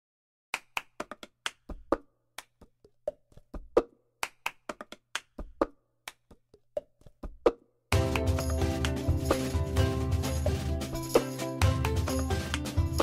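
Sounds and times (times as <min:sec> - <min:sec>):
hands clapping: 0:00.5 - 0:06.4, 0:08.0 - 0:09.6, 0:11.2 - 0:13.0.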